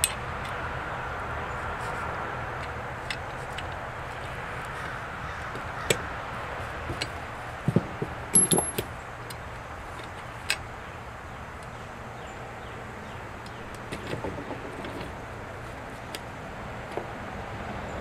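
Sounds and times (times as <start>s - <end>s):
small steel parts clicking: 8.3s - 10.7s.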